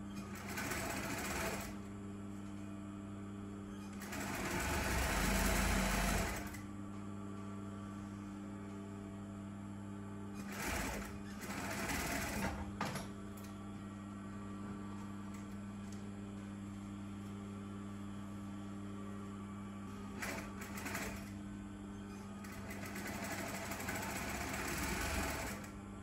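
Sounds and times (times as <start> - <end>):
steady machine hum: 0.0 - 26.0
sewing machine stitching: 3.9 - 6.6, 10.4 - 12.6, 22.4 - 25.7.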